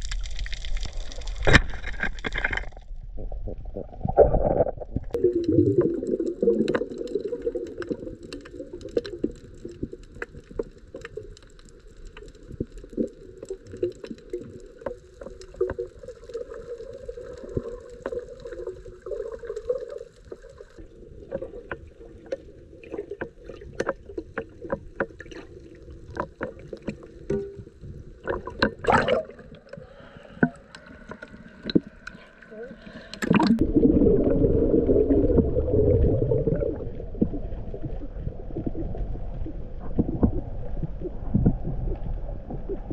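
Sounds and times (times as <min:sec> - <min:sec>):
water splashing: 0:00.0 - 0:11.3, 0:21.3 - 0:42.9
underwater clicks and crackles: 0:00.0 - 0:42.9
underwater watery rush: 0:00.0 - 0:42.9.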